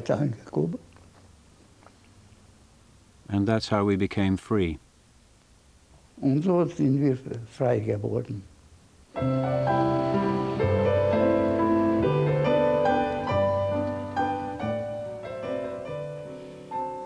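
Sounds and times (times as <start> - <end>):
piano background music: 9.2 - 17.0.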